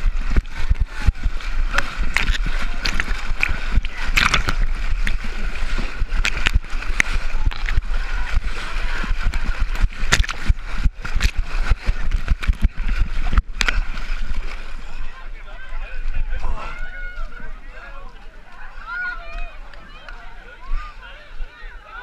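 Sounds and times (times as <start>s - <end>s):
muddy water splashing: 0.0s - 20.9s
water splatting on camera housing: 1.8s - 5.2s, 10.1s - 11.4s.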